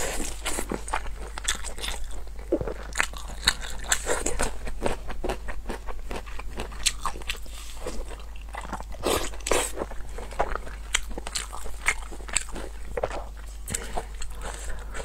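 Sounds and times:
close-up chewing with mouth clicks: 0.0 - 15.0.

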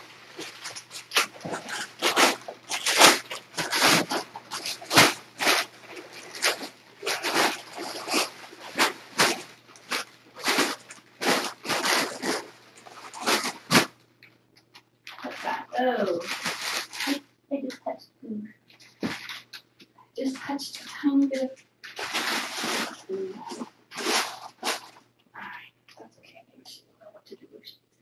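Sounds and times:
packing paper crumpling: 0.0 - 13.9, 15.1 - 17.2, 20.3 - 25.0.

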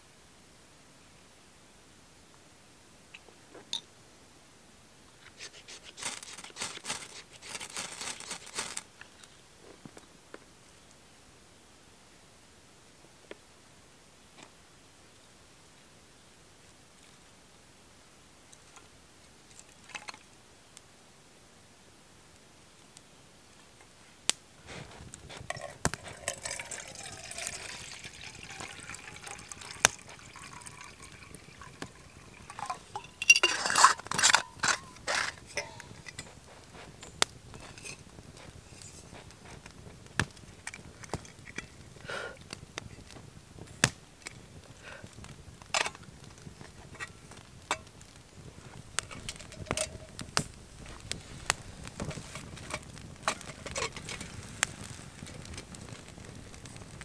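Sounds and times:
water pouring into metal pot: 25.5 - 35.7
metallic clinks and knocks: 32.5 - 36.4.

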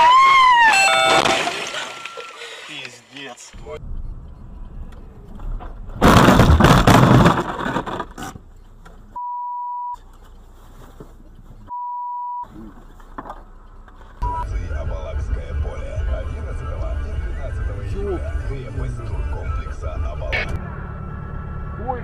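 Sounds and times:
truck crashing into car: 0.6 - 2.5, 5.9 - 8.4
censor beeps: 0.7 - 1.3, 9.2 - 10.0, 11.7 - 12.5, 14.2 - 14.5, 20.3 - 20.6.

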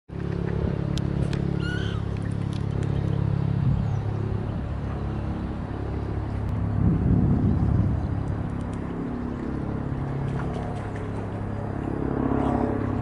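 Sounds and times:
helicopter flying overhead: 0.1 - 13.0
bird rising call: 1.5 - 2.2.

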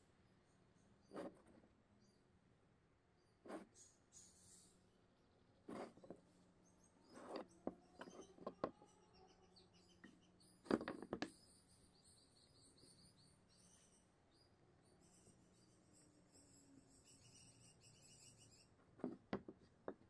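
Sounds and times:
bird chirping: 1.9 - 2.3, 3.2 - 18.8
wood pieces knocking on table: 10.7 - 11.3.

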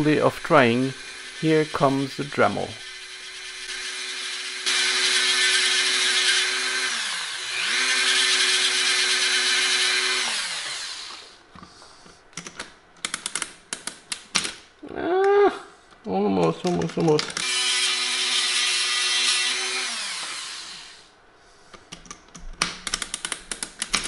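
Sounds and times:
rotary tool grinding metal: 0.1 - 11.4, 17.4 - 21.1.

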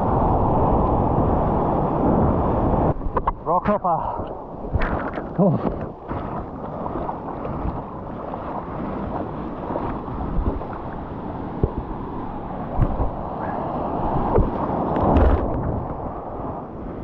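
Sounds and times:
wind buffeting microphone: 0.0 - 17.0
water sloshing against surfboard: 3.0 - 17.0
sharp water splashes: 4.6 - 7.9.

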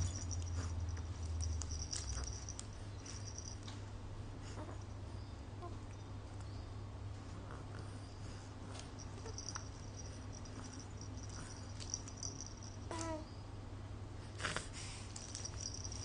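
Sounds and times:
plush toy rustling and clicking: 0.0 - 3.8, 8.7 - 13.2, 14.4 - 16.0
steady low hum: 0.0 - 16.0.

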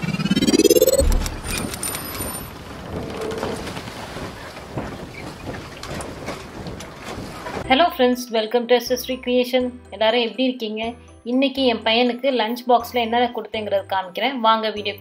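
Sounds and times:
rising whoosh: 0.0 - 2.4.

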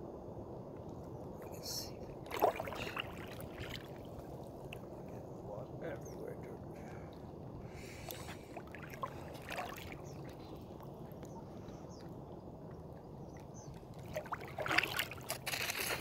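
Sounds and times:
paddle splashing in water: 2.2 - 4.4, 8.0 - 10.6, 14.0 - 16.0.

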